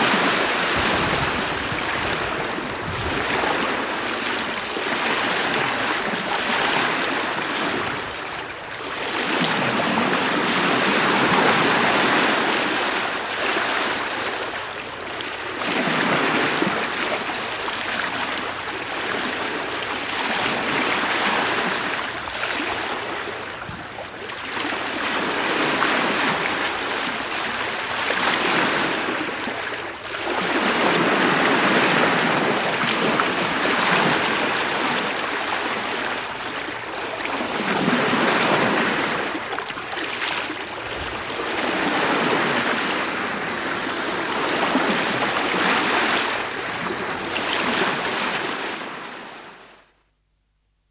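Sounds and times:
wind on microphone: 0:00.0 - 0:14.8, 0:19.0 - 0:49.6
water rushing past ship bow: 0:00.0 - 0:49.9.

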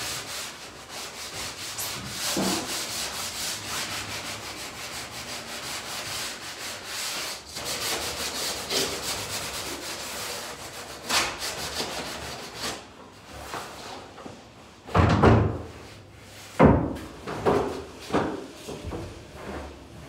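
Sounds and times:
sandpaper rubbing on wood: 0:00.0 - 0:12.8.

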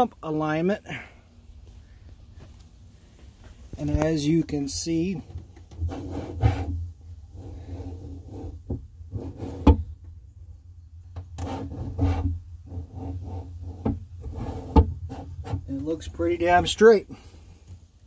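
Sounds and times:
camera rubbing against hoses: 0:05.1 - 0:09.8, 0:11.4 - 0:16.1.

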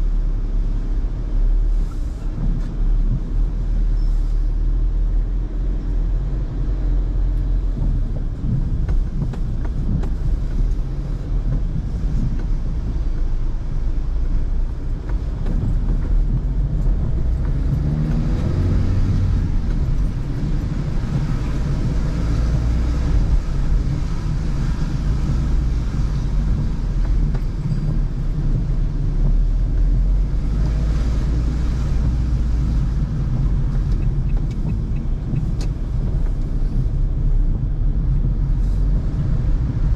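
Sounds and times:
engine and road rumble: 0:00.0 - 0:39.9
tyre hiss on wet road: 0:38.5 - 0:39.3.

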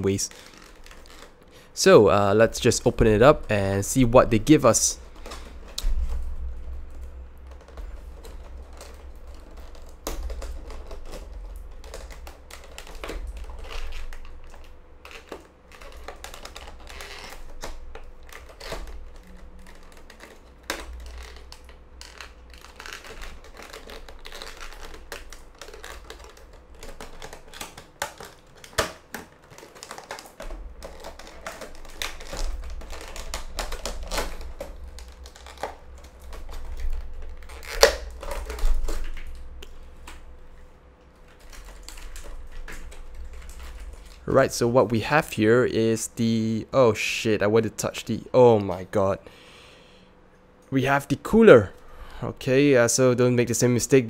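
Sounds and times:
plastic packaging crackling: 0:00.0 - 0:46.6.

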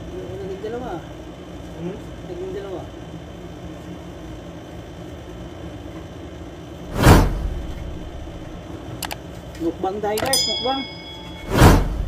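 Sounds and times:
low room rumble: 0:00.0 - 0:09.2, 0:09.8 - 0:12.0
loud whoosh: 0:06.9 - 0:08.6, 0:11.4 - 0:12.0.

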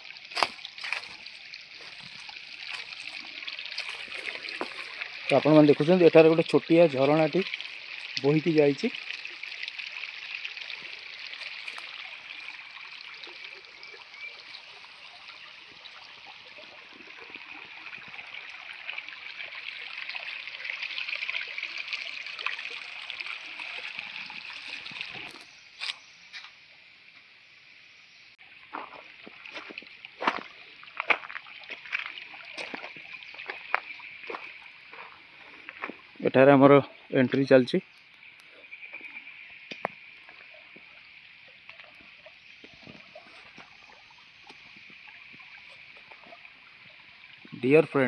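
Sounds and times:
stream trickling over stones: 0:00.0 - 0:48.0
footsteps crunching on gravel: 0:00.3 - 0:05.0, 0:28.7 - 0:36.2.

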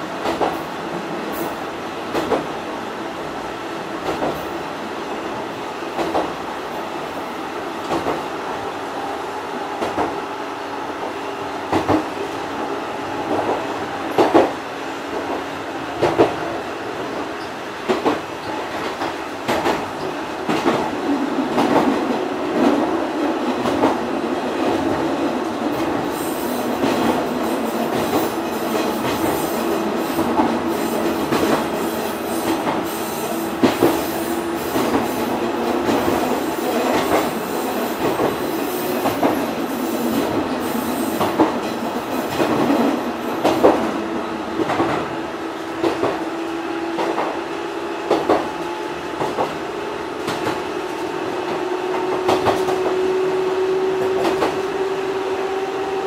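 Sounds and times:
train wheels clicking over rail joints: 0:00.2 - 0:00.7, 0:01.3 - 0:02.5, 0:04.0 - 0:04.6, 0:06.0 - 0:06.4, 0:07.8 - 0:08.3, 0:11.7 - 0:12.1, 0:13.3 - 0:14.6, 0:17.4 - 0:44.0, 0:44.6 - 0:45.1, 0:45.8 - 0:46.2, 0:46.9 - 0:47.4, 0:48.1 - 0:48.6, 0:49.2 - 0:49.6, 0:50.2 - 0:53.0.

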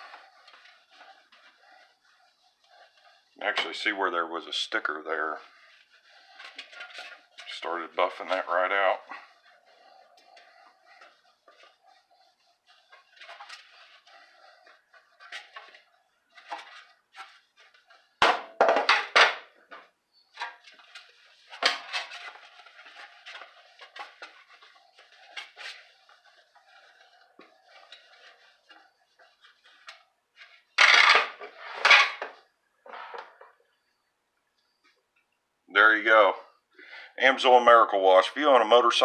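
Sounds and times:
towel rubbing a fender: 0:00.0 - 0:18.2, 0:19.5 - 0:30.8
knock and clatter: 0:18.2 - 0:19.5.

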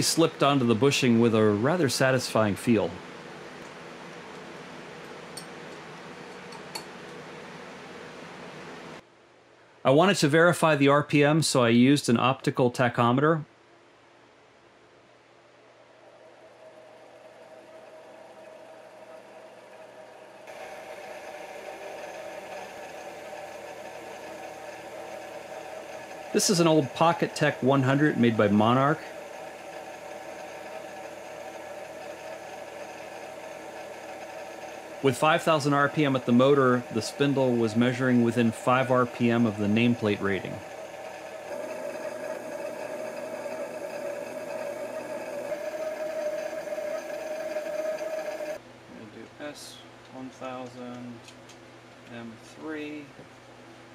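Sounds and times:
spinning pulleys whirring: 0:16.0 - 0:48.6
servo motor humming: 0:20.5 - 0:48.6.

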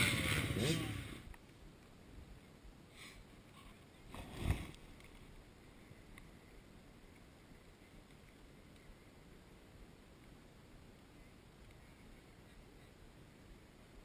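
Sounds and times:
faint steady hiss: 0:00.0 - 0:14.0
low thump or rustle: 0:04.1 - 0:05.3.

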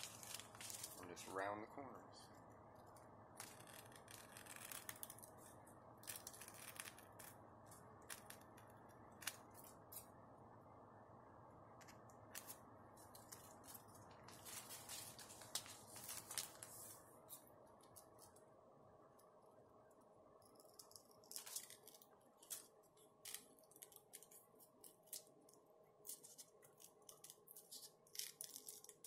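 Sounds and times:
scissors snipping foil and paper: 0:26.0 - 0:29.0.

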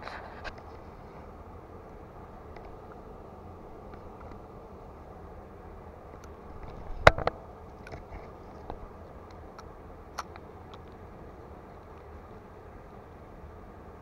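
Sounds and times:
low background noise: 0:00.0 - 0:14.0
faint ticks: 0:03.8 - 0:04.5.

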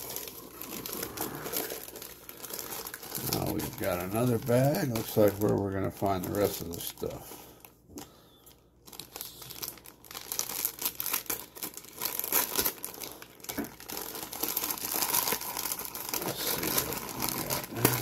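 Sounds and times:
plastic bag crinkling: 0:00.0 - 0:18.0.

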